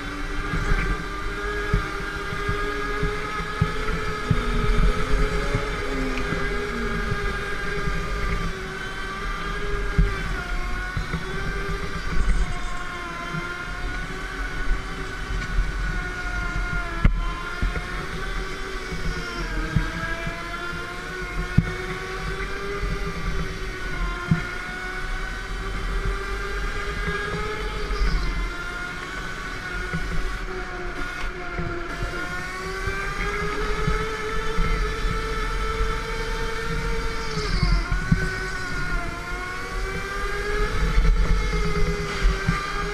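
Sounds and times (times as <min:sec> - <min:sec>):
go-kart motor revving: 0:00.0 - 0:42.9
low rumble: 0:03.1 - 0:10.4.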